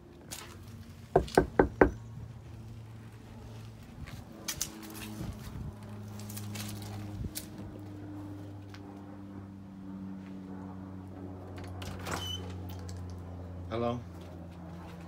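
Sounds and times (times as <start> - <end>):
knocking on a door: 1.2 - 2.0.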